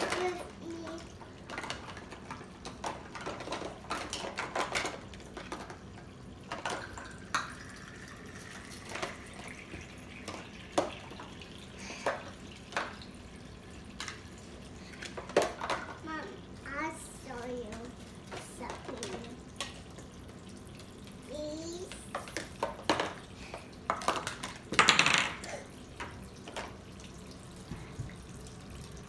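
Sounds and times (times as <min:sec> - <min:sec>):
plastic toy dishes clattering: 0:00.0 - 0:07.7, 0:08.4 - 0:13.1, 0:13.9 - 0:16.3, 0:17.3 - 0:20.1, 0:21.4 - 0:26.8
water trickling from faucet: 0:05.2 - 0:15.0, 0:16.0 - 0:23.9, 0:25.5 - 0:29.0.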